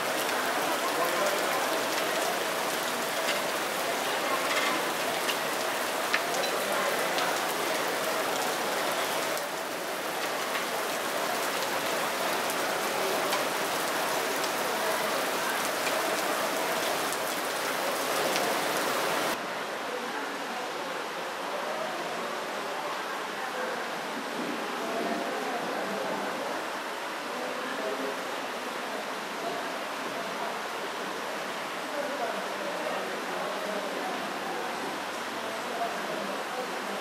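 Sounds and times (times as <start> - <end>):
waterfall splashing: 0.0 - 19.4.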